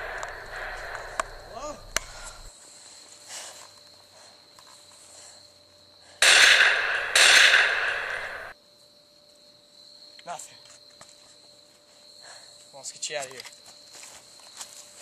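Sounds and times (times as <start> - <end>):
loud bangs with hissing burst: 0.0 - 2.5, 6.2 - 8.5.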